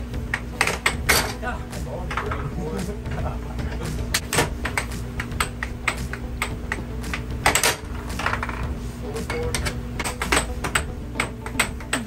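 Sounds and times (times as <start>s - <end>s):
air blower humming: 0.0s - 12.0s
puck clacking against mallets: 4.2s - 7.6s.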